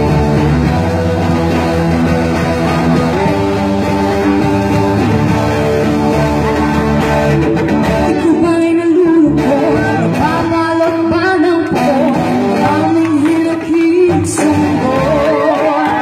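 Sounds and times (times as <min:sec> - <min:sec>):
electric guitar: 0:00.0 - 0:16.0
woman singing: 0:08.1 - 0:16.0.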